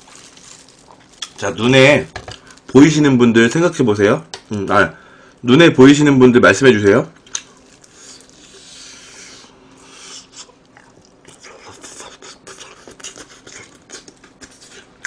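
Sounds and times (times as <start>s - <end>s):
chewing crispy food: 0.0s - 2.7s, 7.2s - 8.9s, 9.9s - 15.0s
wet mouth clicks: 10.0s - 15.0s.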